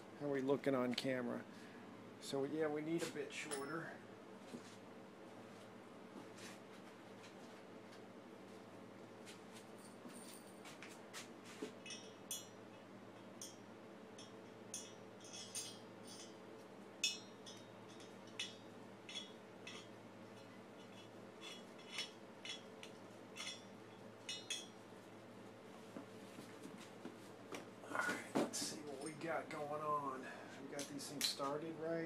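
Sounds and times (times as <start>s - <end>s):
metallic clinks of tool and studs: 11.8s - 13.6s, 14.2s - 16.4s, 17.0s - 24.8s.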